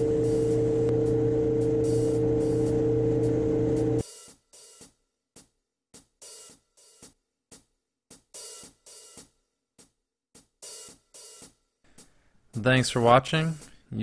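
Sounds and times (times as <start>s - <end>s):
wood lathe running: 0.0s - 4.0s.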